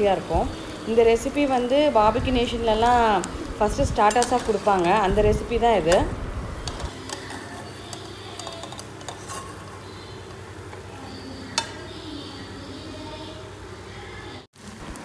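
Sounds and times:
potatoes sizzling in hot oil: 0.0 - 10.8
metal spoon scraping pan: 2.8 - 5.2, 6.6 - 10.4.

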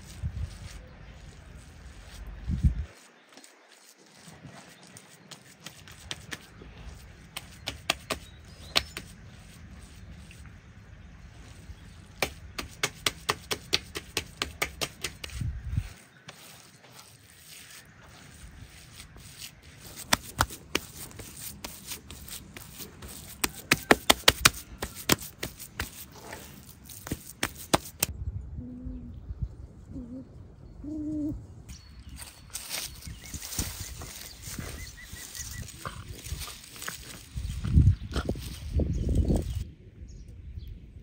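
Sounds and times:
hands slapping minced meat: 12.2 - 15.4, 19.8 - 26.1.

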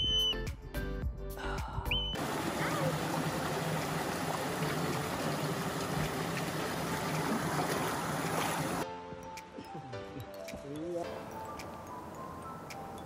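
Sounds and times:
creek water rushing and babbling: 2.2 - 8.8, 11.0 - 13.0.

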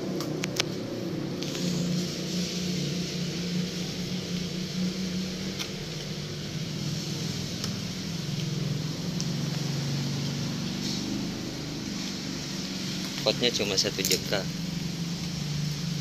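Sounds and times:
constant hiss: 0.0 - 16.0
low motor hum: 0.0 - 16.0.

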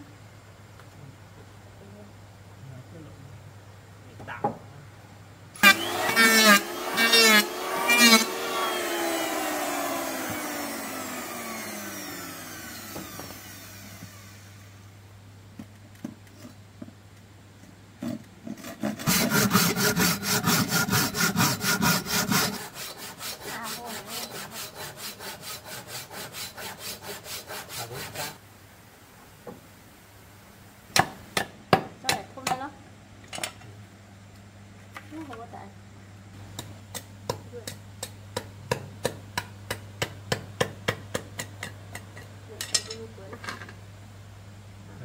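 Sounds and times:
hand saw cutting wood: 5.6 - 14.4, 18.5 - 28.4.

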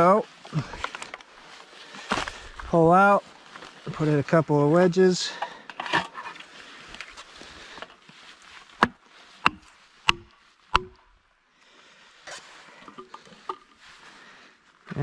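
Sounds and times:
axe striking plastic wedge: 8.8 - 11.0.

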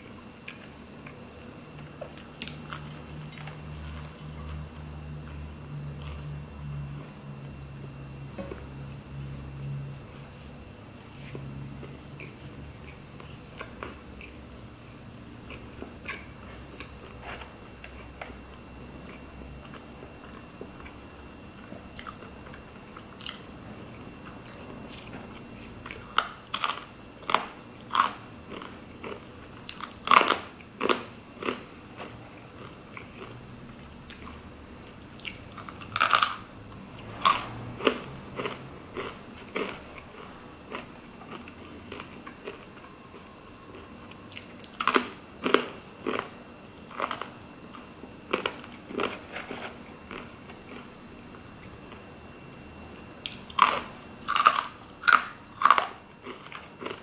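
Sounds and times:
crunching crisp food: 0.4 - 6.2, 24.2 - 52.0, 53.2 - 57.0
chewing: 37.2 - 46.3, 53.2 - 57.0.

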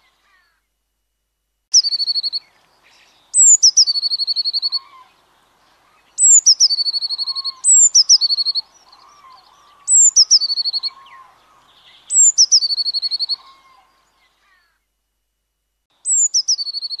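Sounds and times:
blue tit singing: 1.7 - 5.3, 5.9 - 13.9, 16.0 - 17.0.

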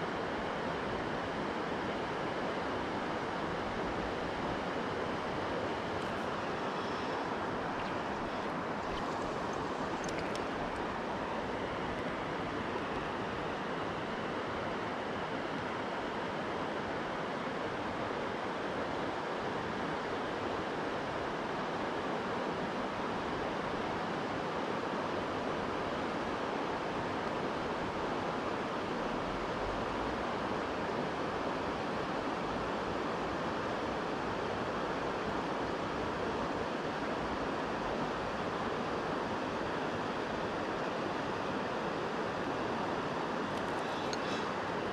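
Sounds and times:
flowing river water: 0.0 - 44.9.

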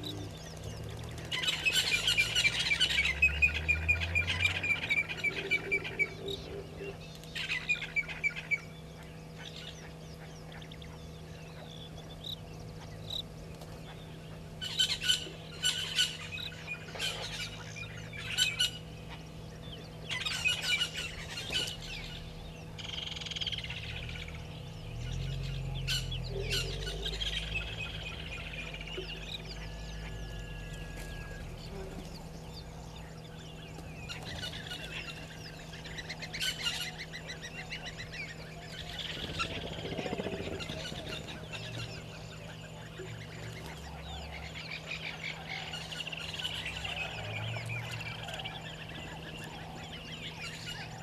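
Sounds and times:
faint low hum: 0.0 - 51.0
kingfisher trilling call: 20.0 - 51.0.

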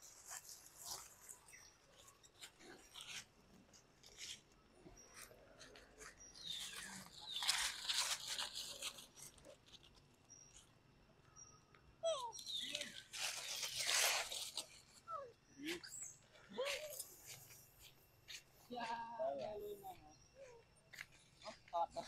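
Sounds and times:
rustling in dry leaves: 0.0 - 5.8, 6.4 - 10.7, 12.3 - 18.9.

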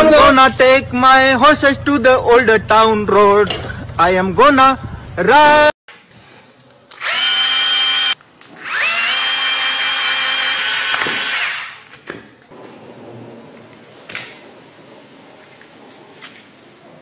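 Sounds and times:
cordless drill motor whining: 6.9 - 11.8.

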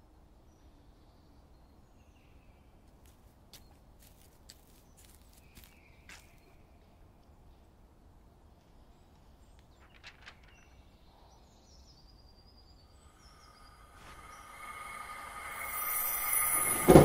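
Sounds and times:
faint high bird chirps: 8.9 - 17.0
wash of sound: 13.0 - 17.0.

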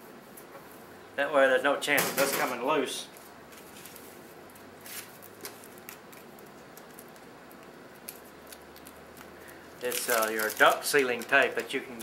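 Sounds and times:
low steady hiss: 0.0 - 12.0
tape roll crinkling: 3.2 - 12.0.

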